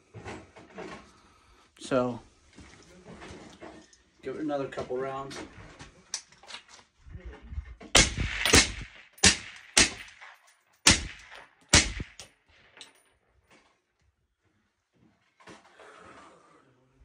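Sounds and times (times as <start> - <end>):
suppressed rifle shots: 7.9 - 12.4.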